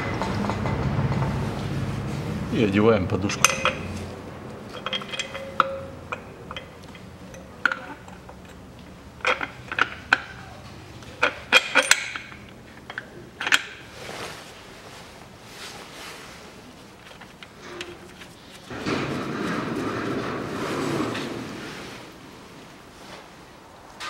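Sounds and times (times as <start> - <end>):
metallic clinks and knocks: 3.3 - 10.5, 11.2 - 13.8.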